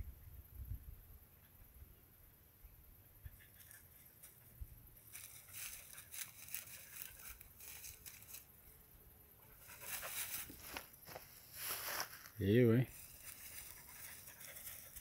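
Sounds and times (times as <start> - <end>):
dry grass rustling and crackling: 3.5 - 8.6, 9.6 - 15.0.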